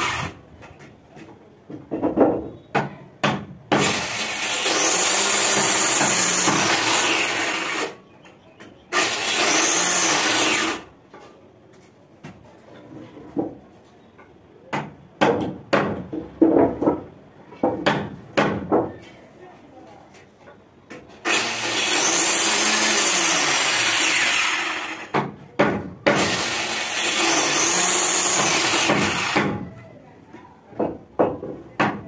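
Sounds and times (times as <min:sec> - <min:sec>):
electric planer shaving wood: 0:21.3 - 0:25.1.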